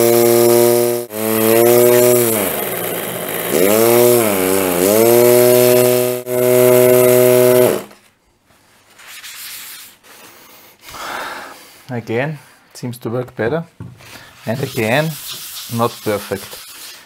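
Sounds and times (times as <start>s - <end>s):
electric air horn buzzing: 0.0s - 8.0s.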